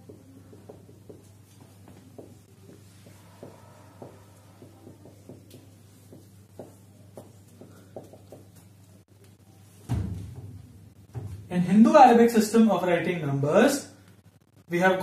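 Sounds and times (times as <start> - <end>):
marker writing on whiteboard: 0.0 - 9.1
steady low hum: 0.0 - 14.9.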